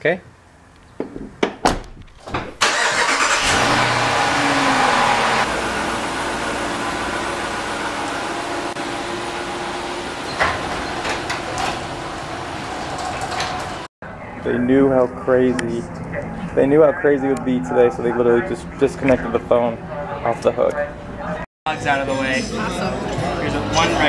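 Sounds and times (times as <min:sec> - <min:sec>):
car engine starting and idling: 0:02.6 - 0:13.9.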